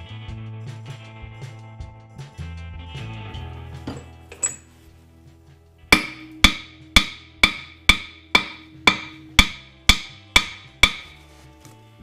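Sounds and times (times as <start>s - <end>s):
background music with percussive beat: 0.0s - 11.3s
ringing wood block hits: 5.9s - 11.2s.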